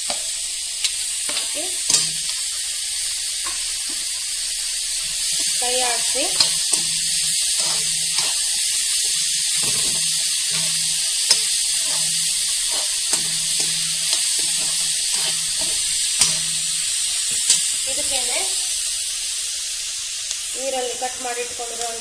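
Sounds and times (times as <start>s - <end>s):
vegetables sizzling in oil: 0.0s - 22.0s
metal spoon scraping pan: 1.3s - 2.4s, 5.0s - 18.1s.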